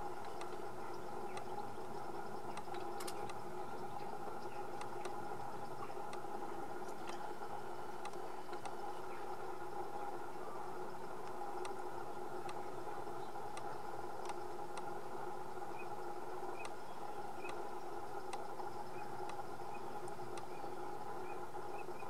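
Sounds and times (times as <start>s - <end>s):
faint clicks: 0.2s - 0.7s, 1.3s - 1.6s, 2.4s - 7.3s, 8.0s - 9.2s, 11.2s - 11.8s, 12.4s - 12.7s, 13.5s - 15.0s, 16.6s - 19.4s, 20.0s - 20.6s.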